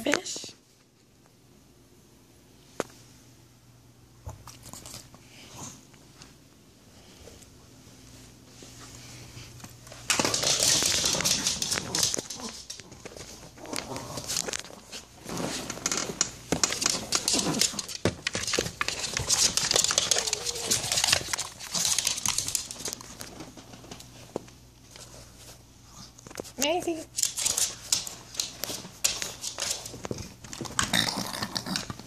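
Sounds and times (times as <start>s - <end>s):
plastic ball toy crinkling and rattling: 10.1s - 14.8s, 15.4s - 23.9s.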